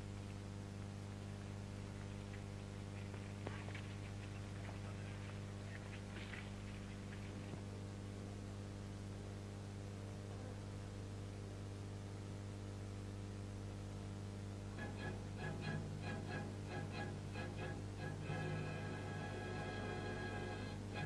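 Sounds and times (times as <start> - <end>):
soundtrack hum and hiss: 0.0 - 21.0
orchestral string music: 14.8 - 21.0.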